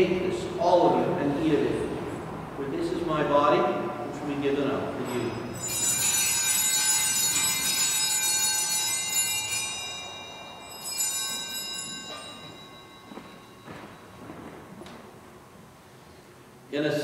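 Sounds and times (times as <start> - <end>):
small bells ringing: 4.9 - 14.8.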